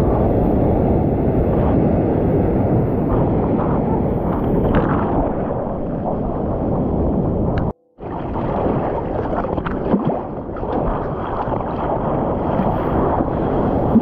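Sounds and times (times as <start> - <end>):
muffled surf rushing: 0.0 - 14.0.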